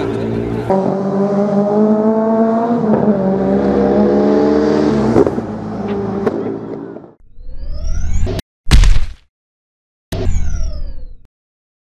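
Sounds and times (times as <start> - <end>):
car engine revving: 0.0 - 7.2.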